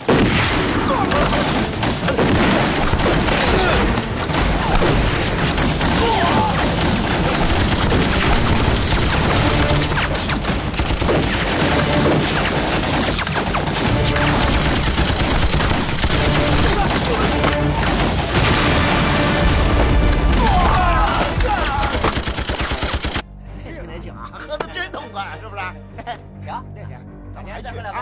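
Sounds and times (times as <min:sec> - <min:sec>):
explosions: 0:00.0 - 0:22.3
rifle fire volleys: 0:00.0 - 0:23.2.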